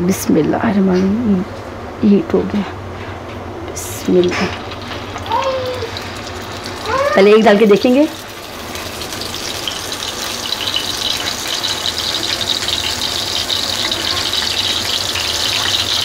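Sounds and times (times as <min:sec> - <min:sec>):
patty sizzling in hot oil: 0:04.1 - 0:16.0.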